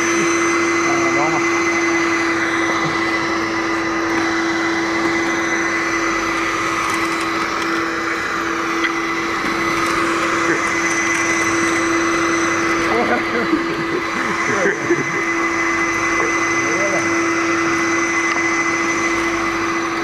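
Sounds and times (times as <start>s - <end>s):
vacuum cleaner running: 0.0s - 20.0s.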